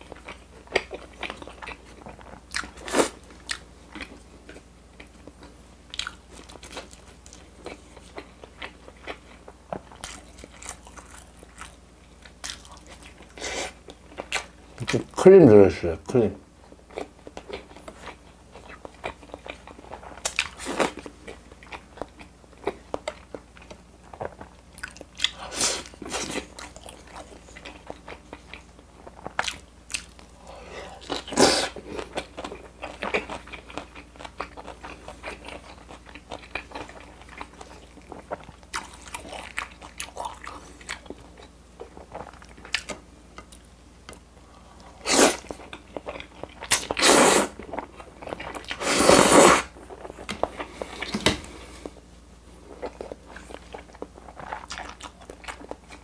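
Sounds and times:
wet chewing and mouth clicks: 0:16.9 - 0:30.4, 0:52.8 - 0:56.0.

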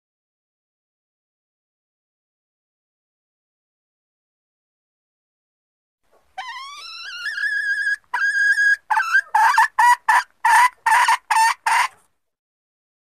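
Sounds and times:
junglefowl hen calling: 0:06.4 - 0:12.1.

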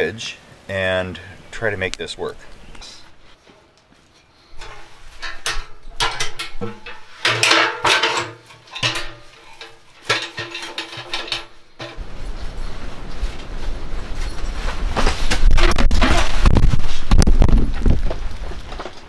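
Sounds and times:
metal stove clanking: 0:04.6 - 0:12.0.

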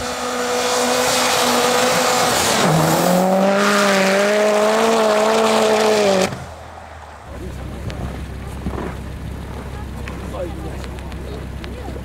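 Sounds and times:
rally car engine revving: 0:00.0 - 0:06.7.

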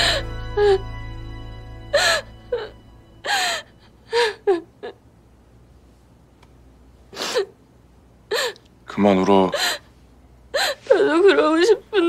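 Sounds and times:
person sobbing: 0:01.9 - 0:05.0, 0:10.5 - 0:12.0.

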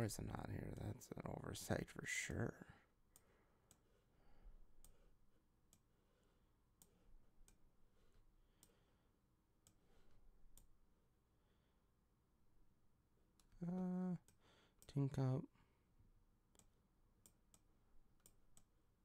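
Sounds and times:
faint computer mouse clicks: 0:16.5 - 0:18.7.

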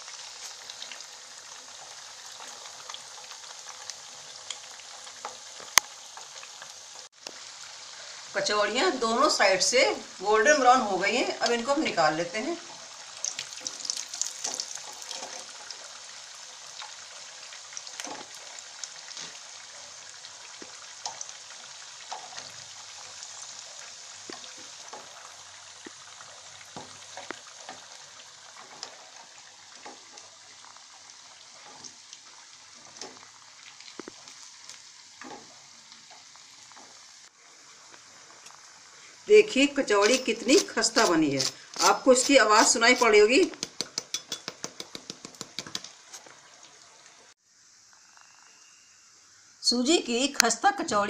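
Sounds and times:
food sizzling in hot oil: 0:00.0 - 0:51.0
slotted spoon clicking: 0:43.0 - 0:45.9.

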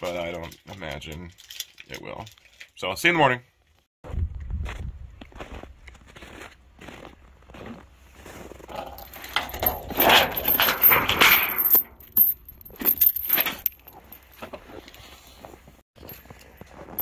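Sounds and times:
chain rattling and clinking: 0:00.0 - 0:02.7, 0:08.7 - 0:14.8, 0:16.0 - 0:17.0.

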